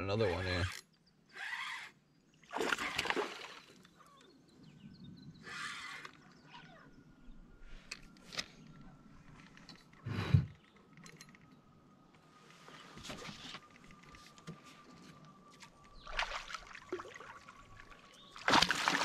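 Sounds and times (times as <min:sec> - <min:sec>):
water splashing: 0:02.5 - 0:03.7, 0:16.0 - 0:19.0.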